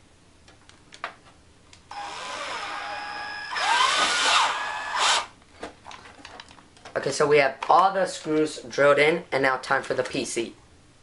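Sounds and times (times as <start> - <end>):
cordless drill driving screw: 1.9 - 5.3.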